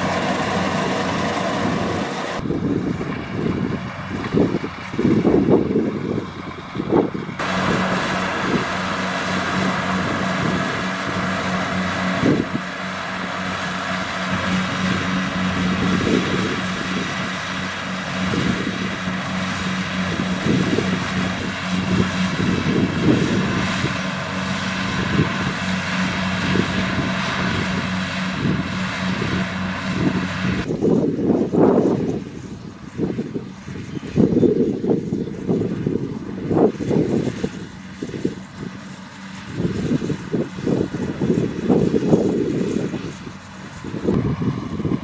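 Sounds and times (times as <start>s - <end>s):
threshing machinery whirring: 0.0s - 31.0s
diesel engine humming under load: 0.0s - 31.5s, 34.8s - 45.0s.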